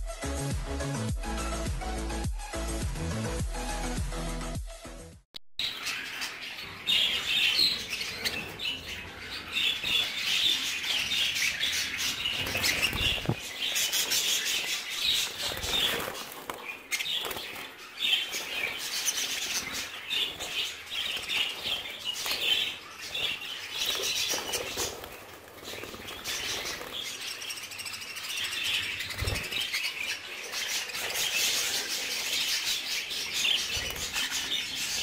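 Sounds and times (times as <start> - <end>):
budgerigars chattering and chirping: 5.6 - 35.0
wings fluttering: 7.1 - 27.9, 28.6 - 35.0.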